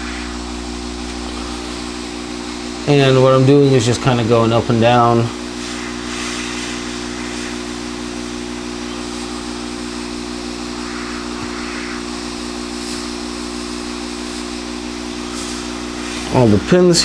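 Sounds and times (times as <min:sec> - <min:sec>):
hiss of rushing hot air: 0:00.0 - 0:17.0
steady low hum: 0:00.0 - 0:17.0.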